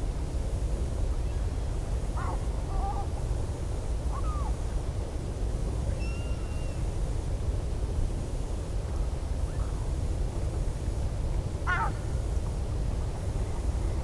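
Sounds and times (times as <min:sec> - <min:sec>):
low wind rumble: 0:06.8 - 0:14.0.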